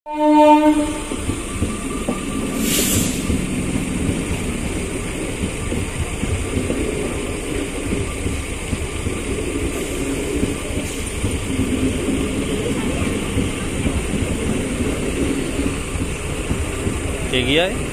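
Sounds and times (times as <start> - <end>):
train horn: 0.1 - 1.2
train rumbling and rattling on track: 0.1 - 17.9
short hiss: 2.6 - 3.3.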